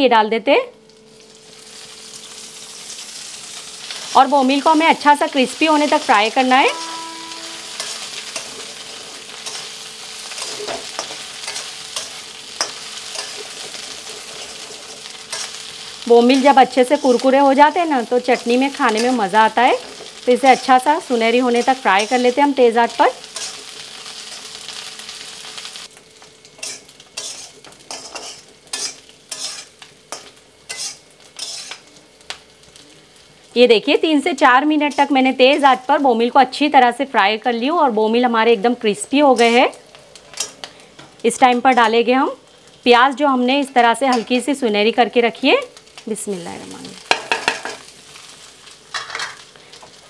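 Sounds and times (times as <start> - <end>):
fish sizzling in hot oil: 0.9 - 50.0
spatula scraping pan: 6.7 - 17.3, 21.4 - 22.4, 26.6 - 31.8.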